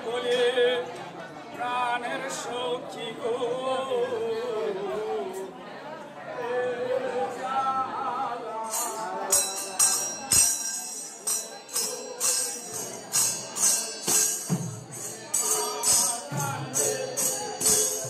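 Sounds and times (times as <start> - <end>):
voices: 0.0 - 18.0
hand cymbals clashing: 8.7 - 18.0.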